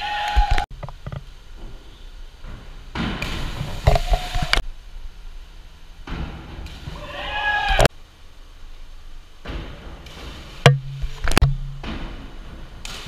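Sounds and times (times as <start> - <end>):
people shouting: 0.0 - 0.6, 6.9 - 7.9.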